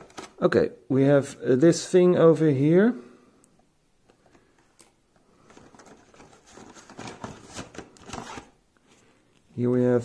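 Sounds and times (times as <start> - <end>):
cardboard box rustling: 5.5 - 8.6.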